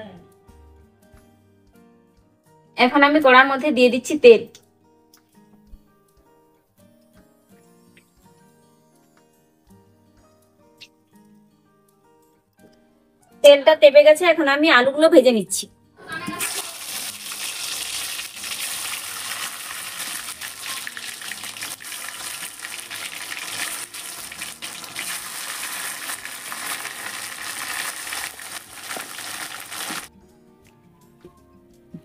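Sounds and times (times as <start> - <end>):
potatoes sizzling in hot oil: 16.4 - 30.1.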